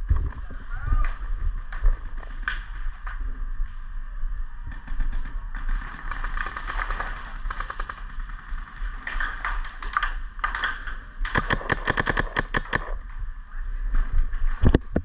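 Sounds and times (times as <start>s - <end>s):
paintball markers firing: 9.2s - 13.0s.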